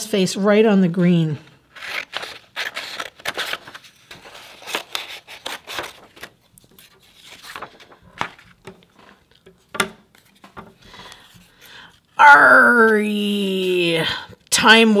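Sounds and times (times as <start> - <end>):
scissors cutting paper: 1.7 - 7.7
paper rustling: 1.7 - 12.0.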